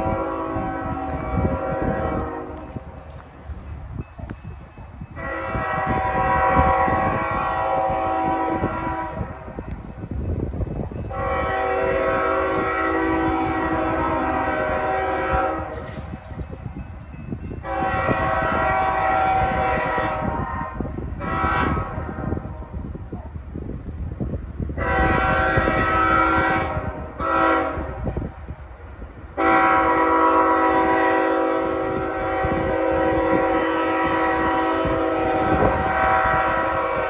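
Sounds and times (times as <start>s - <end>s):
locomotive air horn blasts: 0.0s - 3.2s, 5.1s - 9.7s, 11.1s - 16.3s, 17.6s - 22.9s, 24.8s - 28.4s, 29.4s - 37.0s.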